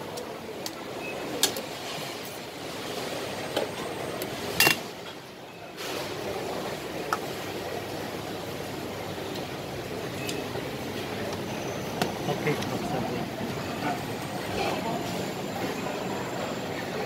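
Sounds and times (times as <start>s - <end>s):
utensils clinking on bowls: 4.6s - 4.9s.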